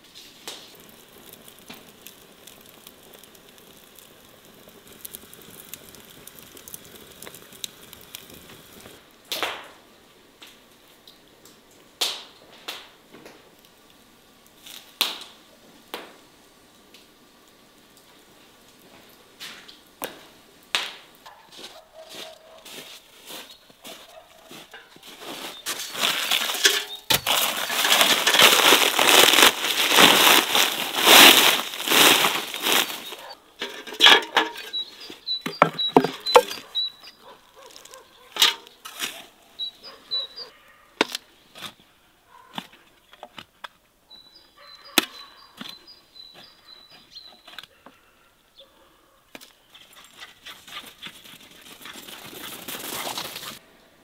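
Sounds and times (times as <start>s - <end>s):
shovel digging and scraping peat: 21.5s - 36.7s, 37.6s - 39.4s, 41.0s - 41.8s, 49.4s - 53.6s
knocks and clatters: 35.5s - 36.6s.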